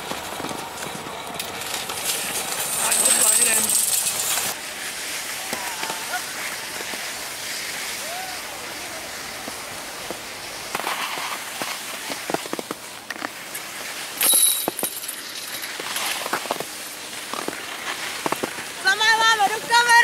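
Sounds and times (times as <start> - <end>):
skis scraping on snow: 0.0 - 20.0.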